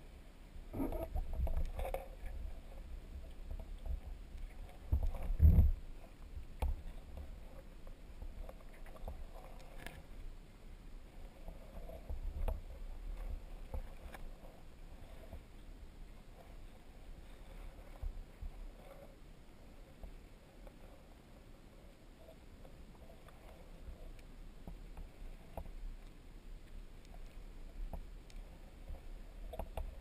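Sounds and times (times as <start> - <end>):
muffled underwater rumble: 0.0 - 30.0
underwater knocks and thumps: 4.8 - 5.8.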